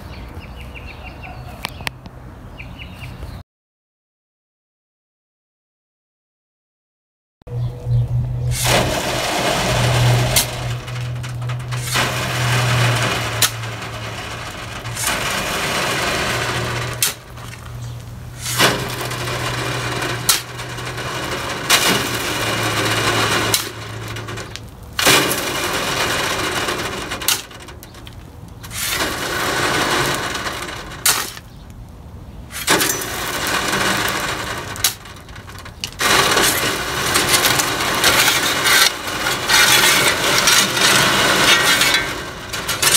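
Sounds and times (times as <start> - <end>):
steady low hum: 7.5 - 27.5
shovel scraping rocky soil: 8.5 - 27.6, 28.6 - 31.5, 32.5 - 35.2, 35.9 - 42.9.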